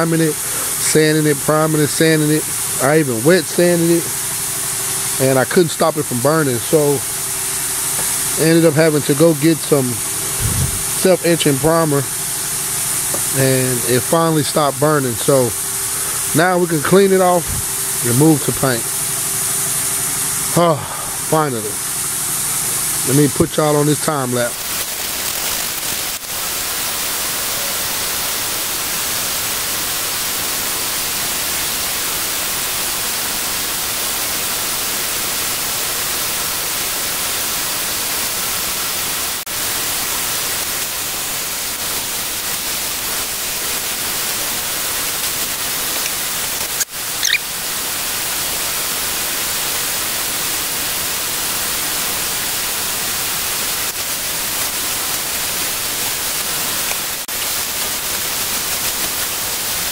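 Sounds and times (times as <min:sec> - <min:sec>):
loud hiss of rushing air: 0:00.0 - 0:59.9
short squeak: 0:47.2 - 0:47.5.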